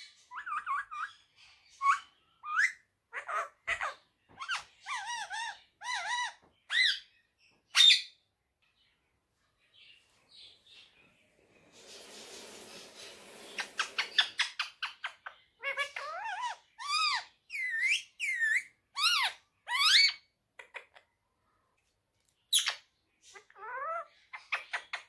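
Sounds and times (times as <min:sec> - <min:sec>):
parakeet calling: 0:01.8 - 0:08.2, 0:12.4 - 0:21.0, 0:22.5 - 0:25.0
rustling noise: 0:11.1 - 0:14.4.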